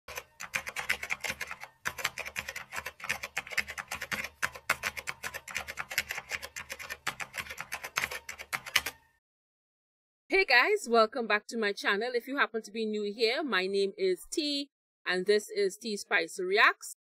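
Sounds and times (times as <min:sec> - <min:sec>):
rapid keyboard typing: 0:00.1 - 0:09.0.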